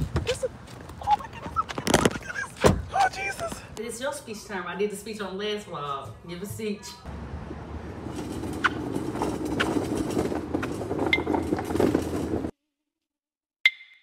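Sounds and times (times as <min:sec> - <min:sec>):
cart wheels rumbling on concrete: 0:00.0 - 0:03.7, 0:07.3 - 0:12.6.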